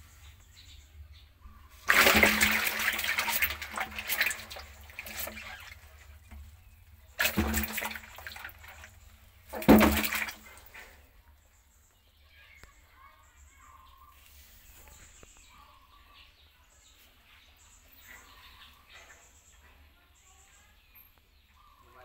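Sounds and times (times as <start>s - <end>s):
water splashing in a tub: 1.4s - 11.0s.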